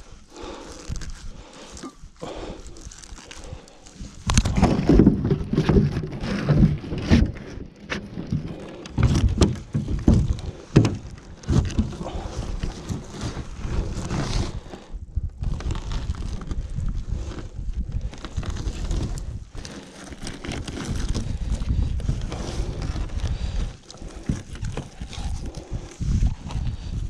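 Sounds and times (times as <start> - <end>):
net and gloves rustling: 0.0 - 27.0
thumps and knocks against hull: 4.3 - 13.4.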